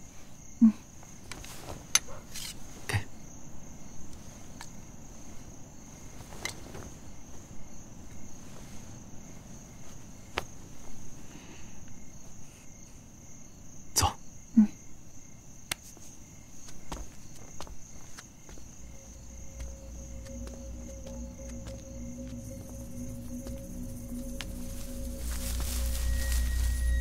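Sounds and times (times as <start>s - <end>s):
crickets chirping: 0.0s - 27.0s.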